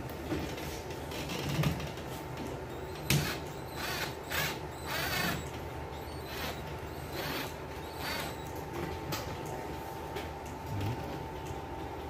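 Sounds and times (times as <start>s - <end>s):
cordless drill driving a screw: 2.7s - 8.5s.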